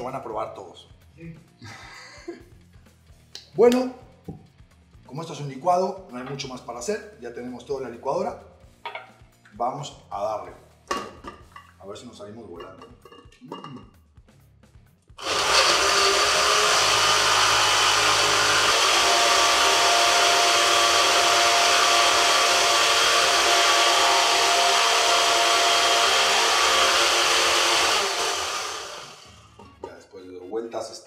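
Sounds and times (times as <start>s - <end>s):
countertop blender running: 15.2s - 29.6s.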